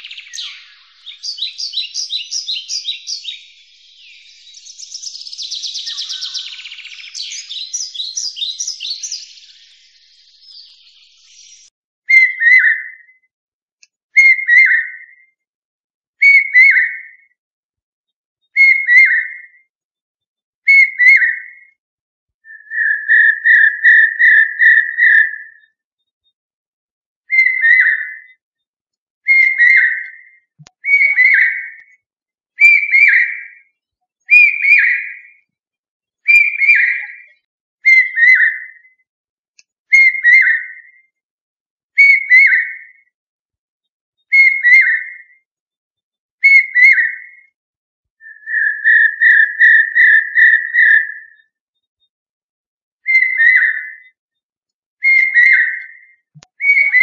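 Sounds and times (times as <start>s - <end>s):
whistled call: 0.0s - 13.1s, 14.2s - 15.2s, 16.2s - 17.1s, 18.6s - 19.6s, 20.7s - 21.8s, 22.5s - 25.7s, 27.3s - 28.4s, 29.3s - 31.9s, 32.6s - 33.7s, 34.3s - 35.4s, 36.2s - 39.0s, 39.9s - 41.1s, 42.0s - 43.1s, 44.3s - 45.4s, 46.4s - 47.5s, 48.2s - 51.6s, 53.0s - 54.2s, 55.0s - 57.0s.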